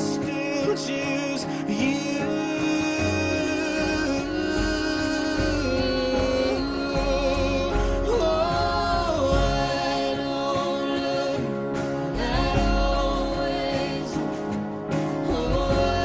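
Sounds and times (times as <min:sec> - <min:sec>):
person singing long notes: 0:00.0 - 0:14.4.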